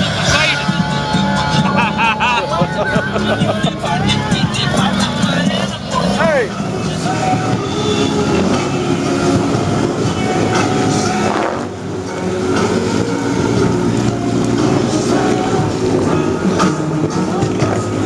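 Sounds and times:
atv engines running under load: 0.0s - 18.0s.

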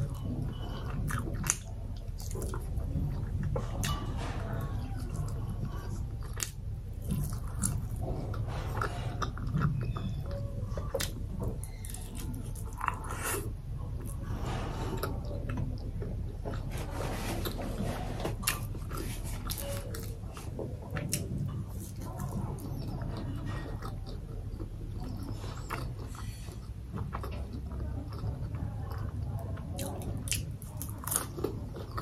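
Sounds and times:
person chewing flatbread: 0.0s - 32.0s.

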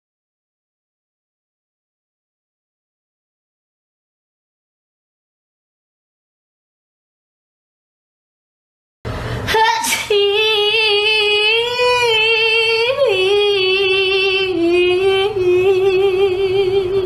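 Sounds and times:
person singing high held note: 9.4s - 12.0s.

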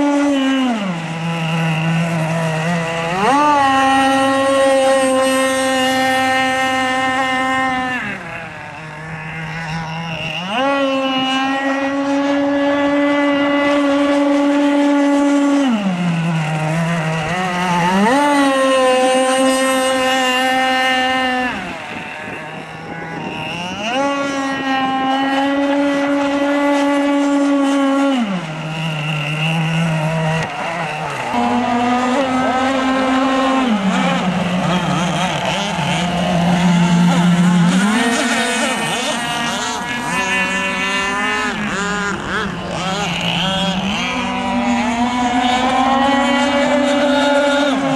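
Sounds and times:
model speedboat engine: 0.0s - 47.9s.

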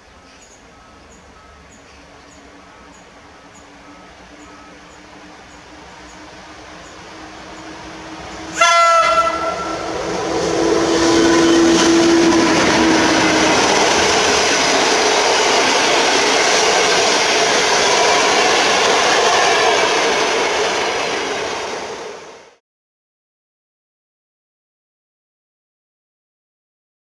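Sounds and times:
train wheels on rails clattering: 0.2s - 22.2s
locomotive horn blast: 3.4s - 14.3s.

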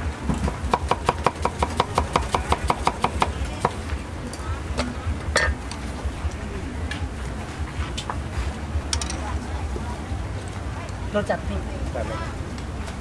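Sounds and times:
cleaver chopping on wooden board: 0.4s - 3.8s.

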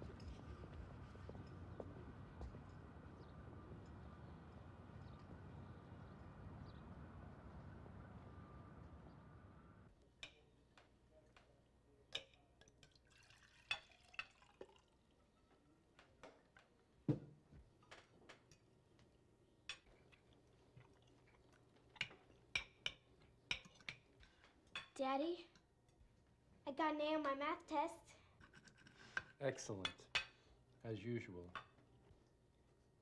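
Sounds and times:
faint outdoor ambience: 0.0s - 33.0s
cutlery clinking on plates: 22.0s - 25.0s.

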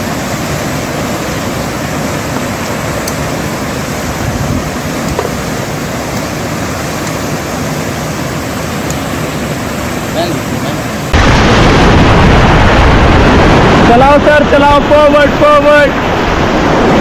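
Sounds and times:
whitewater rapids rushing: 0.0s - 11.5s.

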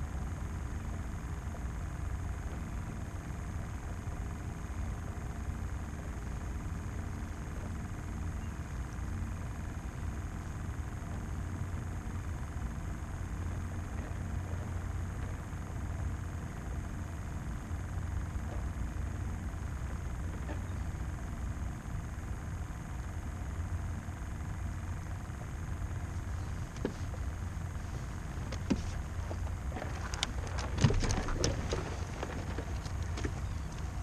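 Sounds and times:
steady low rumble: 0.0s - 34.0s.

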